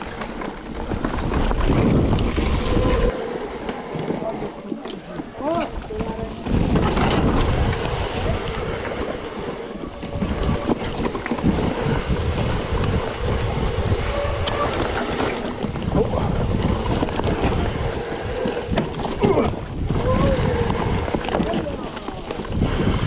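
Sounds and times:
wind buffeting microphone: 0.0 - 3.5, 5.2 - 23.0
bike knocks and rattles: 0.0 - 14.0
tyre rumble on rough trail: 0.0 - 23.0.

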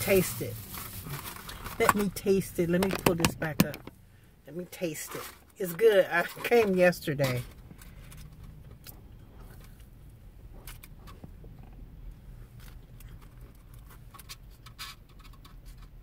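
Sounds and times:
low steady hum: 0.0 - 16.0
soft clicks and rustles of eating: 7.4 - 16.0.

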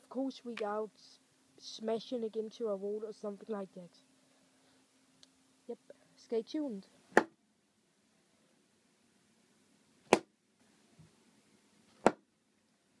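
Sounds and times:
playing cards thwacking into foam: 10.1 - 10.3, 12.0 - 12.2.

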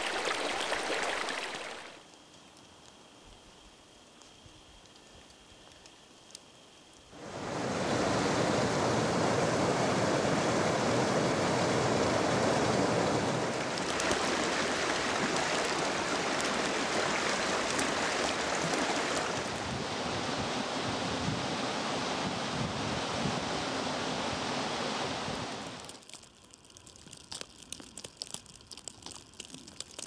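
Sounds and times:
stream rushing under ice: 0.0 - 2.0, 7.2 - 26.2.

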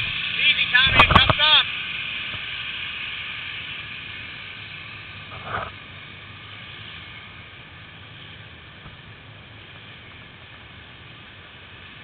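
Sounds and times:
atv engines running: 0.0 - 12.0
water churning around wheels: 0.0 - 12.0.

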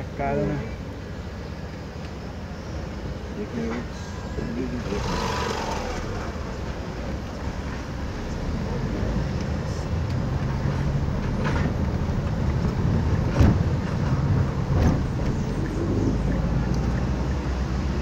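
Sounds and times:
car engine and road noise: 0.0 - 18.0
short thump: 13.3 - 13.7.

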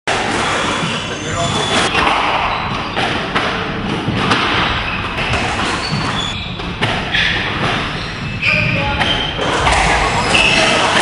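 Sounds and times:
short shoe squeaks: 0.4 - 3.0, 4.8 - 11.0.

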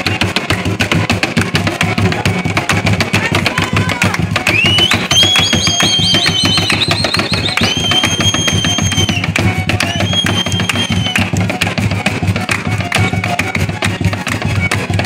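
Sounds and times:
strummed string music: 9.3 - 15.0.

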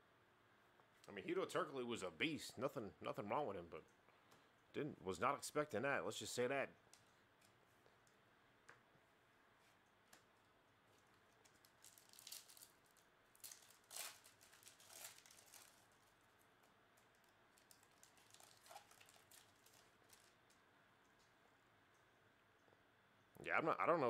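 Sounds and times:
foil wrapper crinkling: 10.9 - 21.3.

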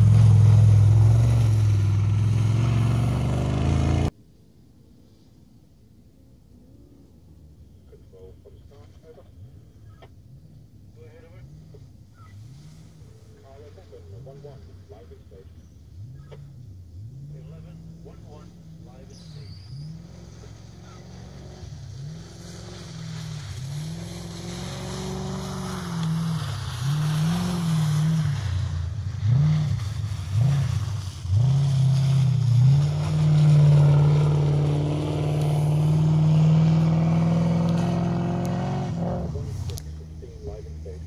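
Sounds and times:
off-road vehicle engine revving: 0.0 - 4.1, 8.2 - 41.0.

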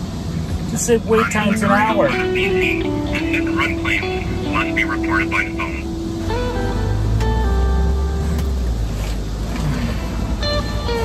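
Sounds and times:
held synth notes: 1.0 - 11.0
heavy bass: 1.2 - 11.0.

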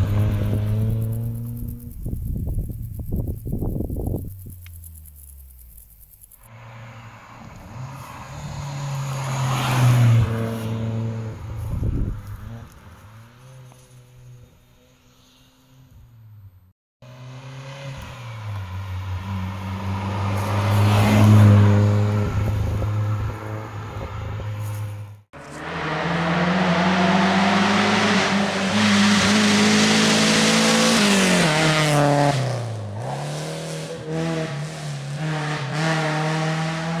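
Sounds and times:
car engine revving: 0.0 - 12.8, 25.4 - 37.0.

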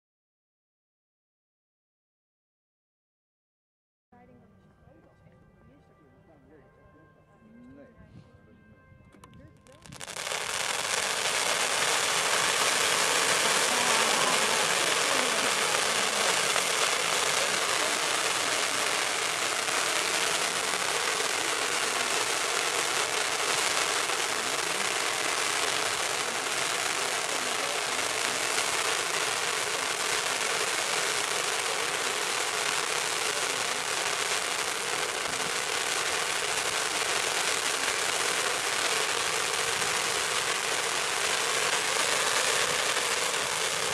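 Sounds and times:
firework fountain crackling hiss: 9.6 - 43.9.

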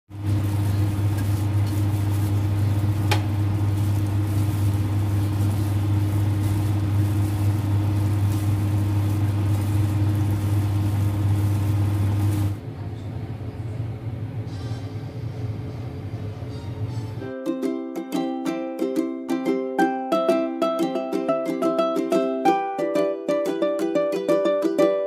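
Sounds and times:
low machine hum with hiss: 0.1 - 17.5.

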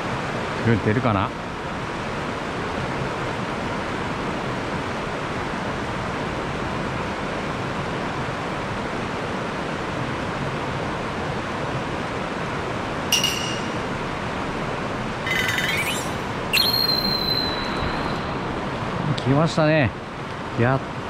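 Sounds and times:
high-pitched chirp: 13.1 - 14.1, 15.3 - 18.5.

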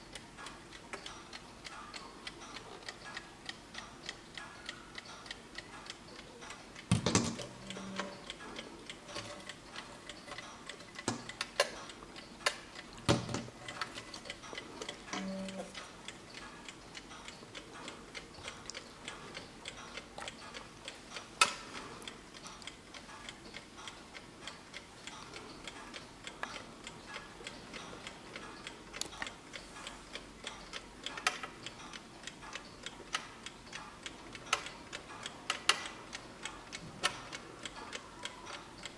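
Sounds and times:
knocks and clicks of handling: 6.9 - 7.5, 13.0 - 14.1
alarm clock ticking: 7.5 - 12.9, 13.6 - 38.9.

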